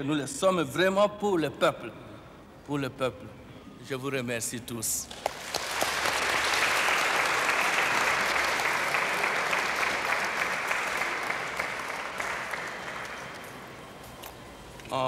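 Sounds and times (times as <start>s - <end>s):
audience applauding: 5.1s - 13.8s.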